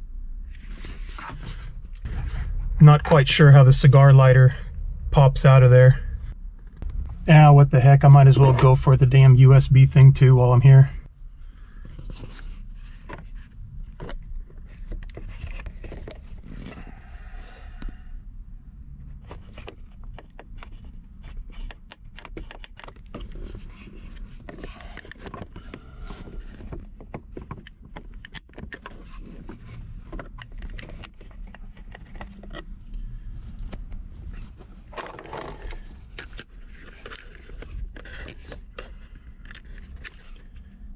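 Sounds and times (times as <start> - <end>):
low rumble: 0.0 - 11.8.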